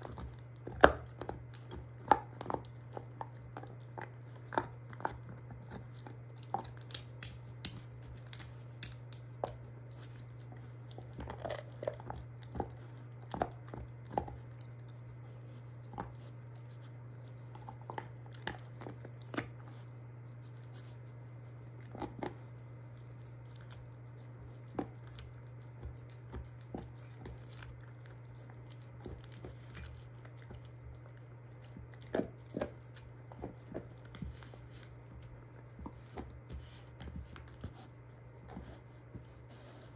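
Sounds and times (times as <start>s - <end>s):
dog crunching bone: 0.0s - 39.9s
wet chewing: 0.0s - 39.9s.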